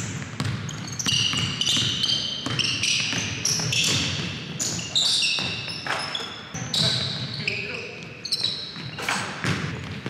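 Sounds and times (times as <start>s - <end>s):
basketball bouncing on floor: 0.0s - 4.3s, 8.8s - 10.0s
sneakers squeaking on hardwood: 0.0s - 10.0s.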